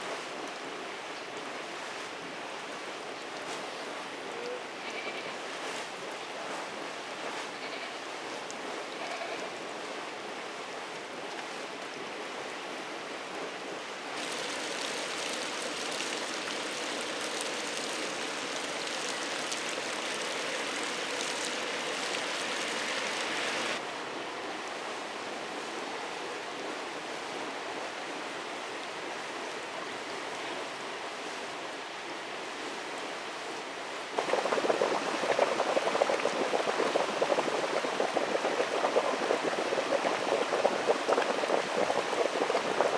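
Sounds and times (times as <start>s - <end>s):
low-pitched water sound: 0.0s - 23.8s, 33.9s - 42.9s
spring water running and splashing: 14.1s - 23.8s, 34.2s - 42.9s
spout pouring into pool: 14.2s - 23.8s, 34.2s - 42.9s.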